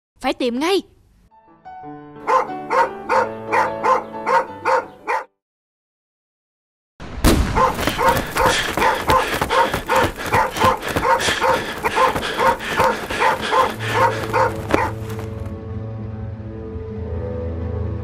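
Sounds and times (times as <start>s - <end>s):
dog barking: 2.2s - 5.4s, 7.5s - 15.5s
background music with low note: 15.5s - 18.0s.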